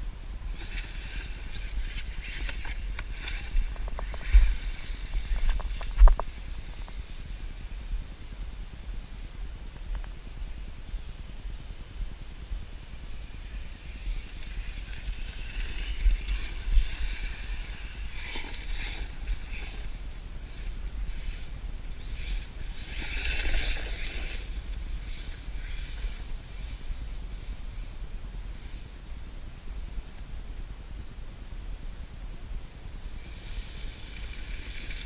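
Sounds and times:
rc car motor whine: 0.5 - 8.4, 12.9 - 27.9, 33.1 - 35.0
tires rushing and crunching on dirt: 13.3 - 27.6.

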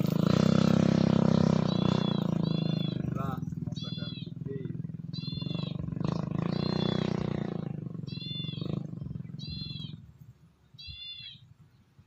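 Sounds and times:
animal short high call: 1.8 - 4.5, 5.2 - 5.8.

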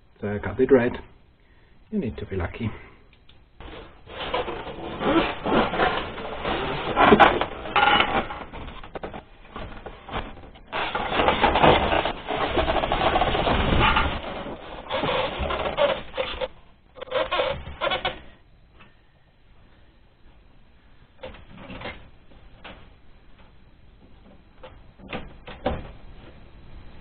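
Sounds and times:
casing parts rubbing and scraping: 3.6 - 18.4.

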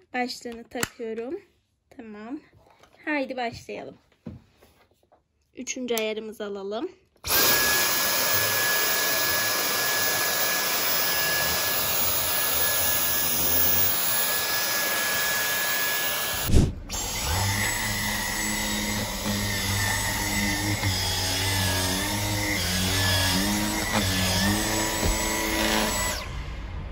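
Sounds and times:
vacuum cleaner whine: 7.2 - 26.4
vacuum thump: 16.3 - 17.0, 23.7 - 26.8.

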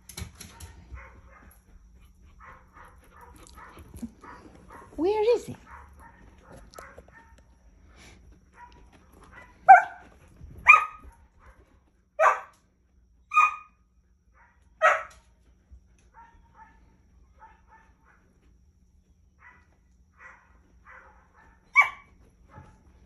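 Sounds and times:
dog barking: 0.4 - 1.6, 2.4 - 7.4, 8.6 - 11.6, 12.2 - 12.5, 13.3 - 13.8, 14.4 - 15.2, 16.1 - 16.8, 17.4 - 18.2, 19.4 - 22.8.

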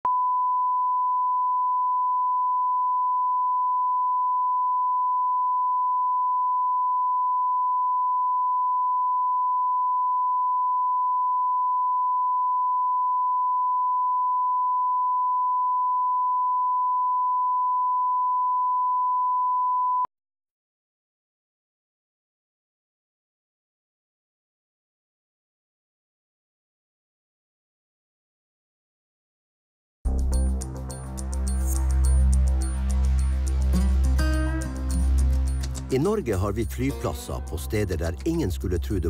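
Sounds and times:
steady sine tone: 0.1 - 20.1.

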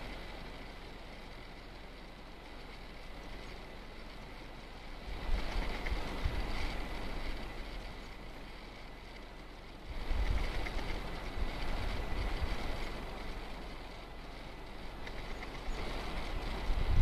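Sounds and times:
wind buffeting microphone: 4.9 - 17.0.

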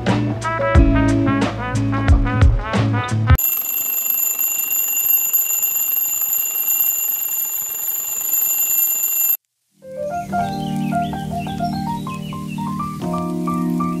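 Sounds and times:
mechanical alarm clock ringing: 3.4 - 9.4.

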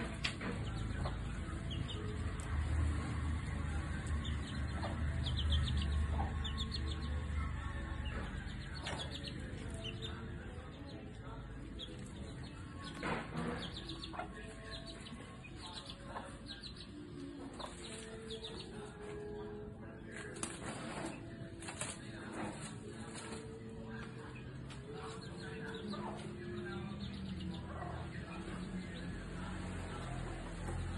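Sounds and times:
chicks peeping: 0.0 - 30.9.

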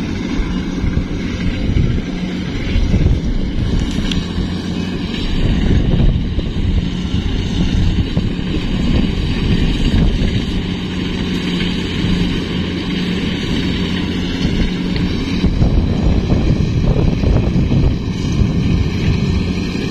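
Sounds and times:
combine harvester engine drone: 0.0 - 19.9.

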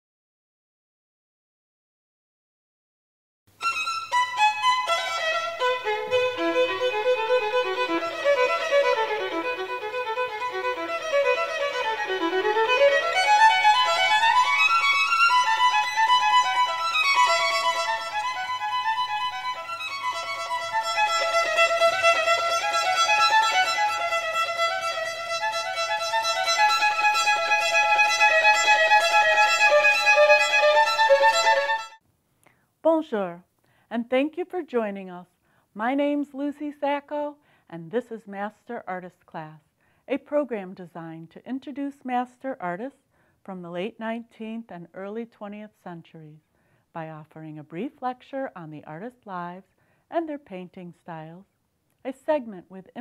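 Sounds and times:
violin melody: 3.6 - 32.0.

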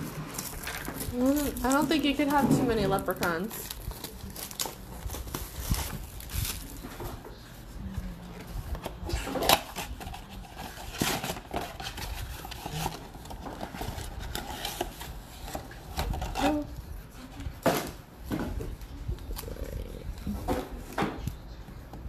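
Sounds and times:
cardboard and foil scraping: 0.0 - 17.6.

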